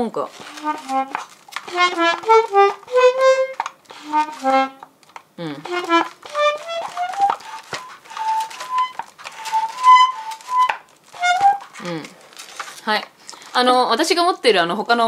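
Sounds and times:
toy accordion melody: 0:00.4 - 0:04.8, 0:05.6 - 0:11.8.

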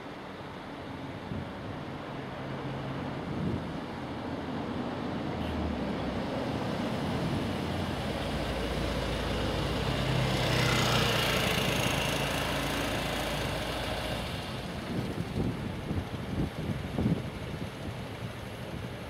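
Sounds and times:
road traffic engines: 0:00.0 - 0:19.0
vehicle passing close: 0:06.9 - 0:15.0.

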